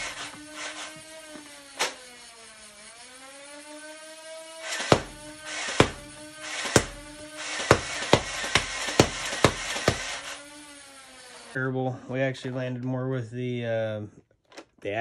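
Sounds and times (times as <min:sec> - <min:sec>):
toy blaster motors whirring: 0:00.0 - 0:11.6.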